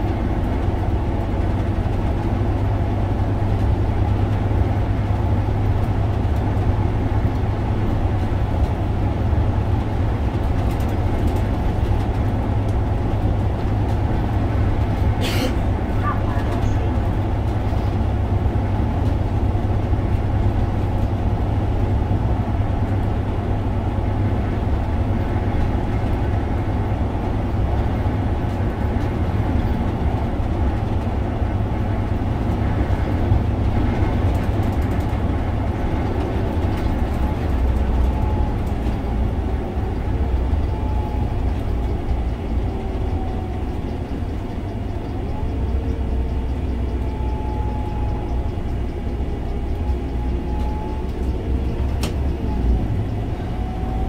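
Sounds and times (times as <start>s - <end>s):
bus interior low rumble: 0.0s - 54.0s.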